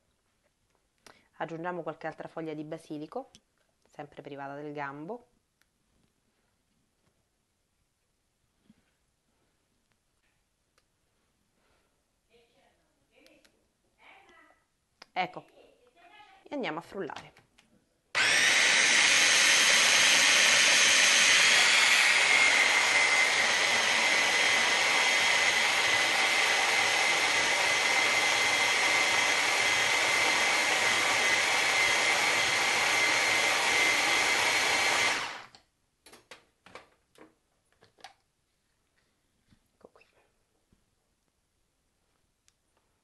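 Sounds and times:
mini chopper motor whirring: 18.2 - 35.5.

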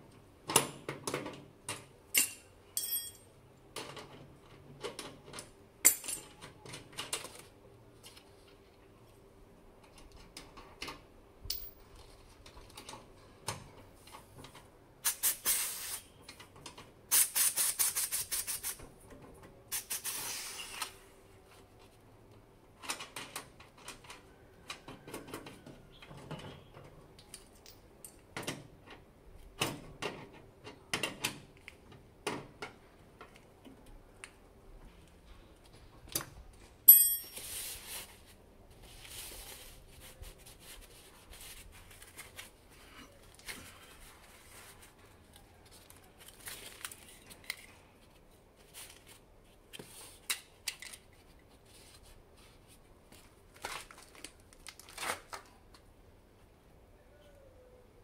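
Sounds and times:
sharp metallic clink: 2.1 - 3.3, 36.9 - 37.4
pressurised gas hissing: 15.0 - 16.0, 19.7 - 20.8.

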